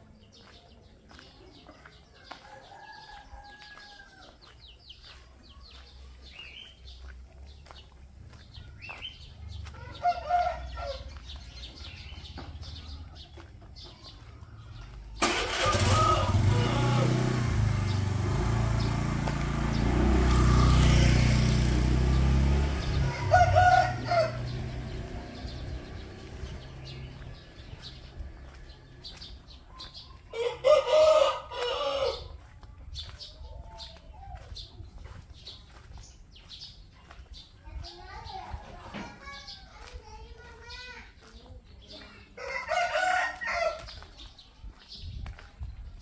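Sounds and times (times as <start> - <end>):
vehicle engine starting and running: 14.7 - 29.6
rooster crowing: 23.0 - 24.6, 30.3 - 32.3, 42.4 - 43.8.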